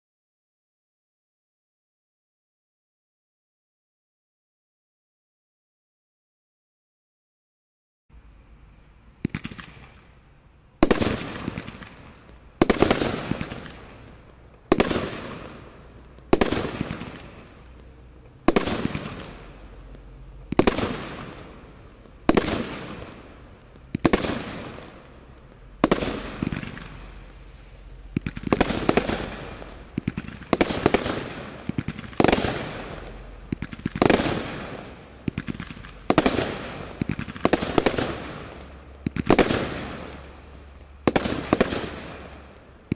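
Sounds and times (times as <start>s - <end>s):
firework shots firing: 9.2s - 42.9s.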